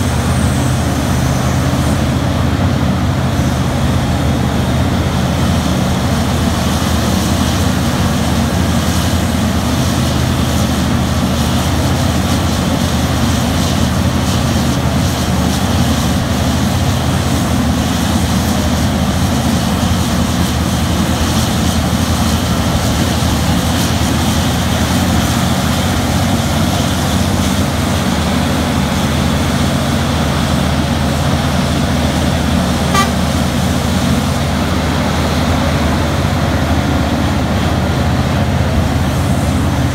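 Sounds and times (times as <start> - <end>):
mining shovel engine and hydraulics: 0.0 - 39.9
short high beep: 32.9 - 33.2.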